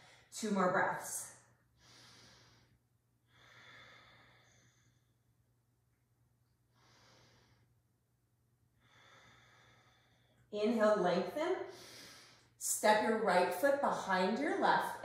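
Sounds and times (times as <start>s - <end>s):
woman breathing deeply: 1.8s - 5.3s, 6.7s - 7.8s, 8.8s - 10.5s, 11.6s - 12.6s.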